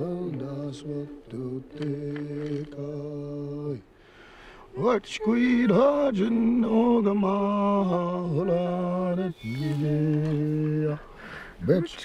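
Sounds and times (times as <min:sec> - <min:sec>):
person chanting long notes: 0:07.9 - 0:11.0.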